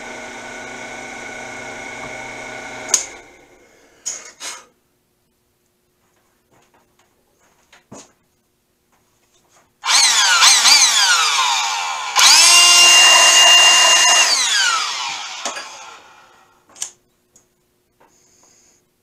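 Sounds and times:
cordless drill running: 0.0s - 3.6s, 9.8s - 16.3s.

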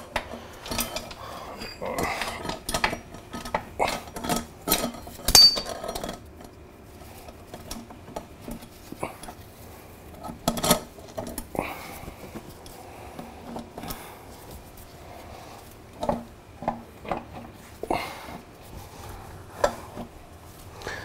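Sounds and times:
metal clinking and knocking: 0.0s - 6.3s.

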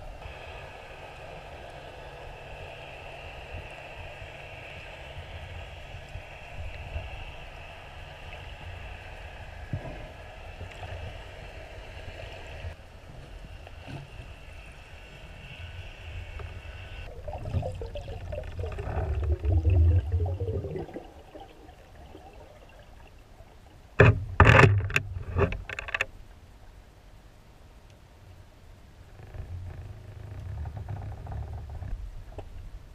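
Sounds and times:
underwater low rumble: 1.5s - 26.5s
gurgling water: 17.0s - 25.8s.

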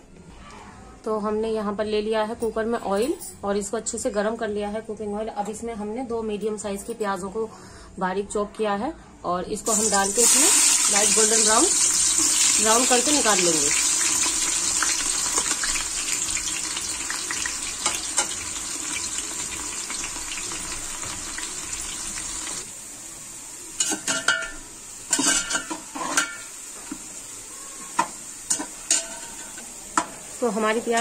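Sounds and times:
onions sizzling in hot oil: 9.6s - 31.0s.

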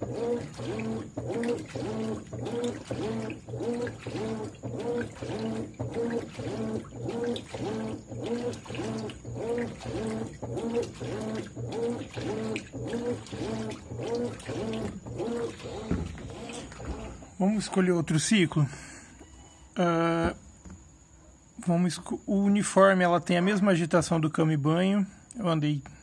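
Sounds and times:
water sloshing: 0.0s - 18.4s
washing machine agitating: 0.0s - 18.8s.

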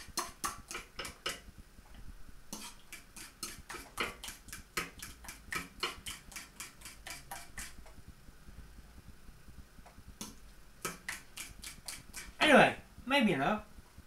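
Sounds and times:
fork clicking against bowl: 0.0s - 1.4s, 2.5s - 7.8s, 10.2s - 12.4s.

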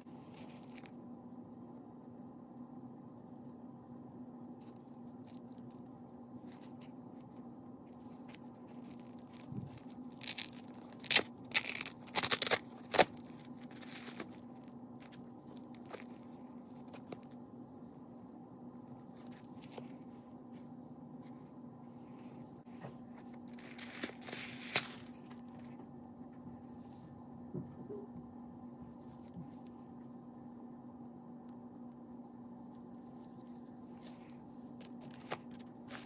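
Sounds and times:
faint steady hum: 0.0s - 36.0s
tissue paper rustling: 8.0s - 17.4s, 22.0s - 25.7s.

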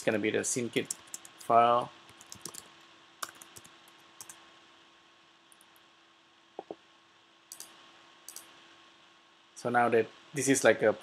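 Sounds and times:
faint steady hum: 0.0s - 11.0s
computer keyboard keystrokes: 0.8s - 1.3s, 2.1s - 4.4s, 7.5s - 8.5s.

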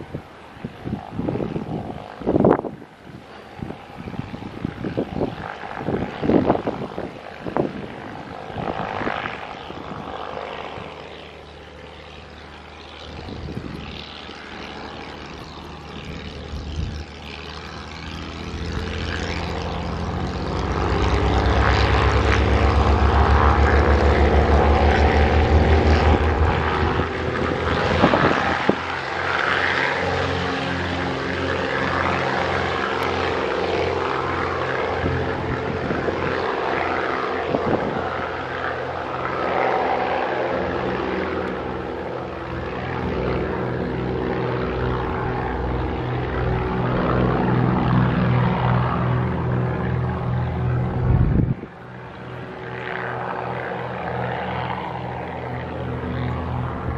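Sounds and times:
propeller plane engines droning: 0.0s - 56.9s.

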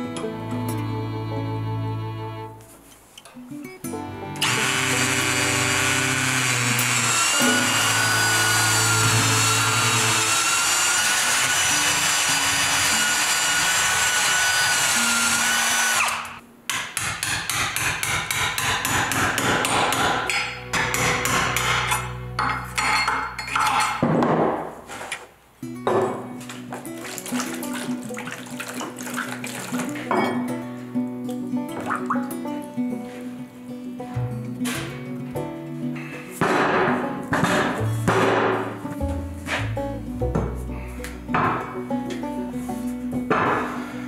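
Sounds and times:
background music with low notes: 0.0s - 10.3s, 19.4s - 23.0s, 25.6s - 44.0s
cordless drill boring into wood: 4.4s - 16.4s.

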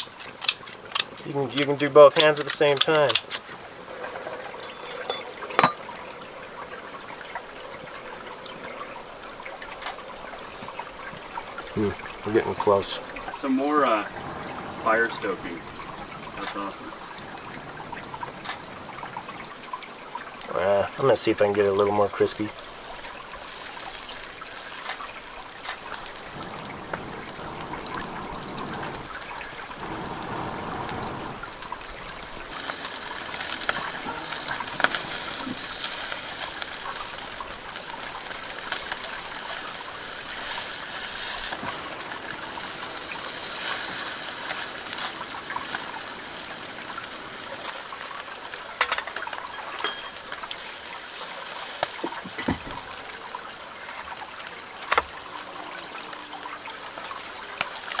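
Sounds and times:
metal utensils clicking on grill grate: 0.0s - 3.5s, 4.6s - 5.8s, 48.8s - 50.5s
stream running over rocks: 0.0s - 58.0s.

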